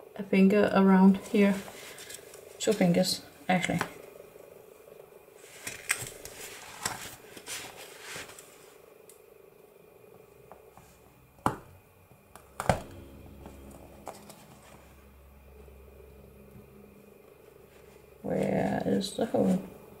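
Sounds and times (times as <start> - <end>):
paper pages rustling: 5.4 - 8.8.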